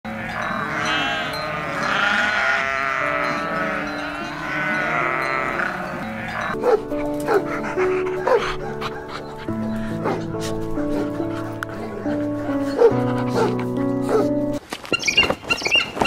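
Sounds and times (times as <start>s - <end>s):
goat bleating: 0.1s - 6.6s
background music: 0.1s - 14.6s.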